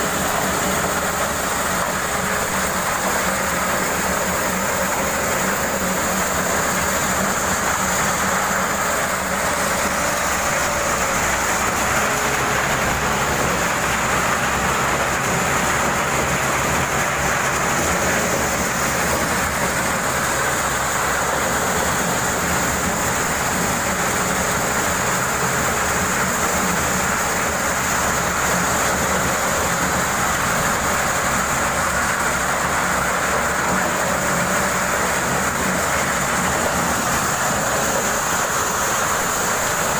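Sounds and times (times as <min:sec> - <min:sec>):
motorised corn sheller running: 0:00.0 - 0:39.9.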